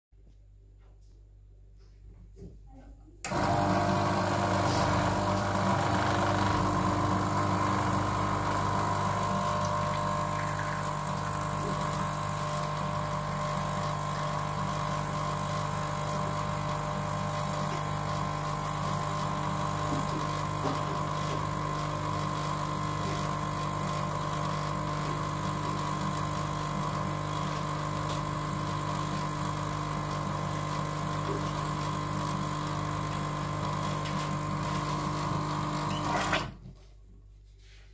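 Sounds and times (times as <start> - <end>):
espresso machine pump humming: 3.3 - 36.5.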